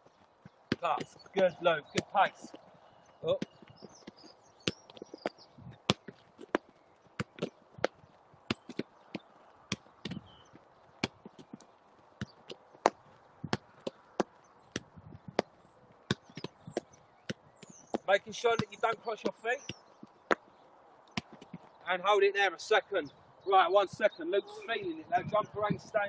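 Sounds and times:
football kicks and taps: 0.4s - 2.6s, 3.3s - 10.4s, 11.0s - 15.5s, 16.1s - 20.4s, 21.1s - 21.7s.

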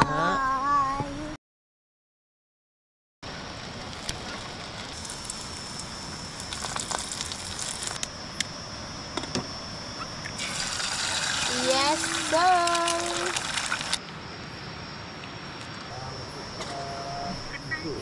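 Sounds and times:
bun sizzling in tin: 3.4s - 8.0s, 10.4s - 14.0s.

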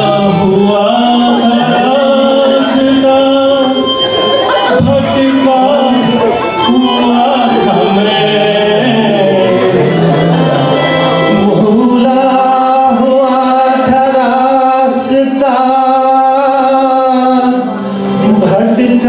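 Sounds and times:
keyboard: 0.0s - 19.0s
man singing: 0.0s - 19.0s
steady held drone note: 1.4s - 13.3s.

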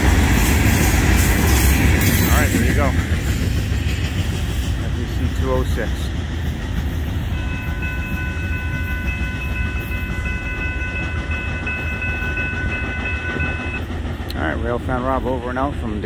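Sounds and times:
freight train rumbling past: 0.0s - 16.0s
steady high ringing tone: 7.3s - 13.8s.

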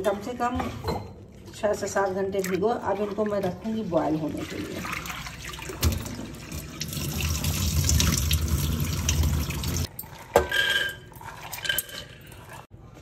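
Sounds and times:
water splashing into a vessel: 1.6s - 9.9s.

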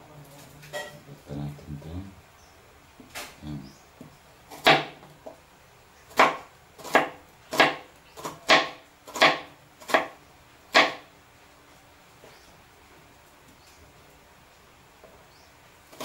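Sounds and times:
knife slicing onion: 6.1s - 11.0s.

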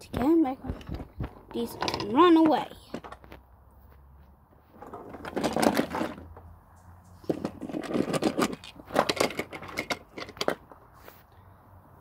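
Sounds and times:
toy trains on wooden track: 0.8s - 3.2s, 4.8s - 6.3s, 7.2s - 10.6s.

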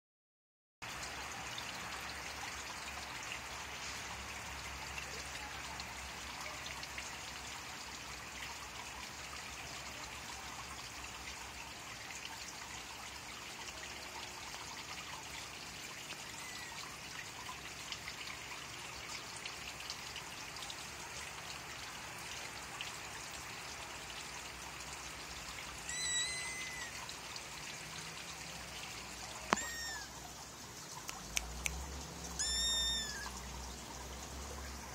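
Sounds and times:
kitten mewing: 25.9s - 27.0s, 29.5s - 30.1s, 32.4s - 33.4s.

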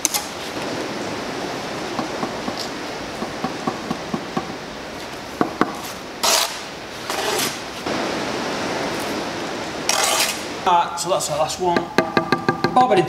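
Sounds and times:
trowel blade scraping mortar: 6.2s - 7.6s, 9.9s - 10.4s
sharp knocks: 11.7s - 12.9s.

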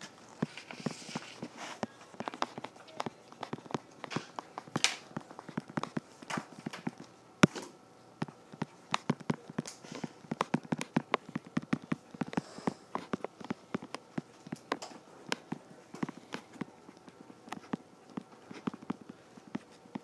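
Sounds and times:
stylus tapping on tablet screen: 8.2s - 20.0s.

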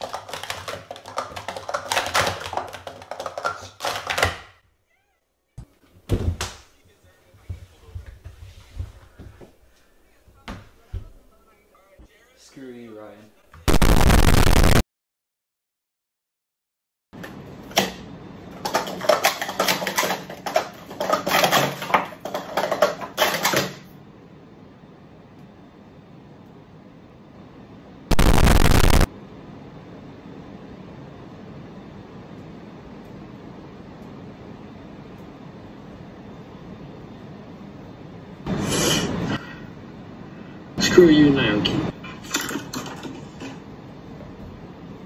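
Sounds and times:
plastic cups clattering: 0.0s - 4.5s, 18.6s - 23.8s.

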